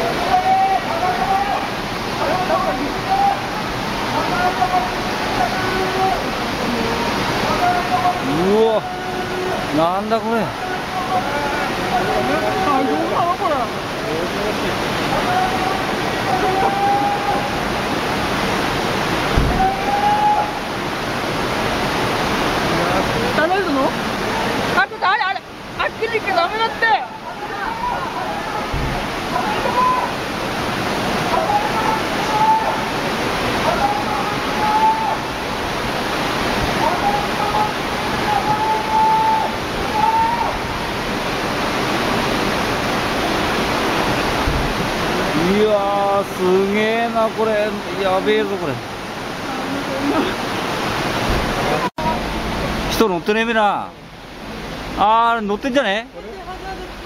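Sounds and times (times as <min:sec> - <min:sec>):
floodwater rushing: 0:00.0 - 0:57.0.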